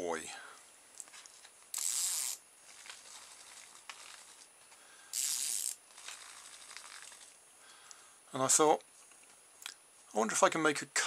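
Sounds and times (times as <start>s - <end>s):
vibrating toy hissing bursts: 1.7s - 2.4s, 5.1s - 7.2s.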